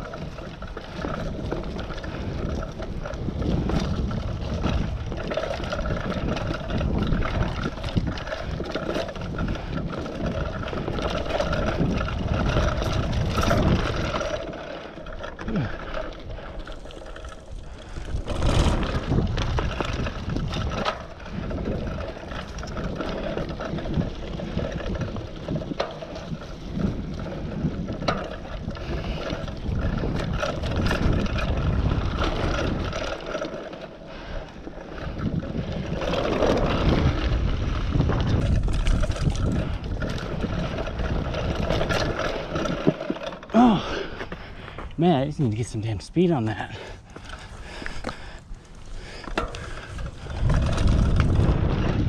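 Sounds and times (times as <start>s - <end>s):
bike clicks and rattles: 0.0s - 52.0s
bike tyres rumbling over dirt: 0.0s - 52.0s
wind buffeting microphone: 0.0s - 52.0s.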